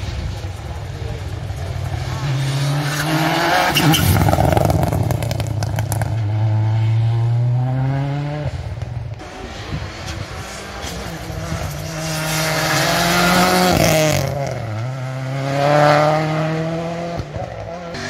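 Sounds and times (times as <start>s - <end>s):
rally car engine at full throttle: 0.0s - 18.0s
tyre and wind noise: 8.1s - 16.4s.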